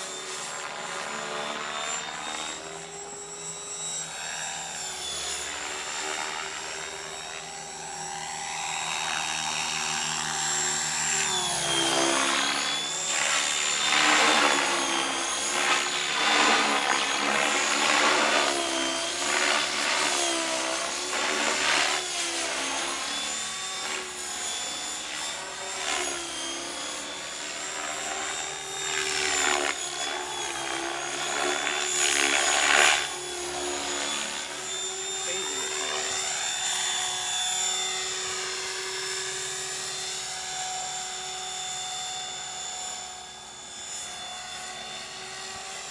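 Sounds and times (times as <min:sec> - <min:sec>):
model helicopter rotor whine: 0:00.0 - 0:45.9.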